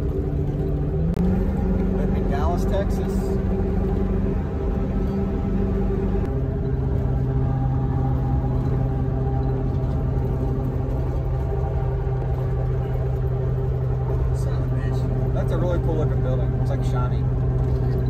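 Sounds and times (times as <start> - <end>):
engine hum: 0.0 - 18.0
road rumble: 0.0 - 18.0.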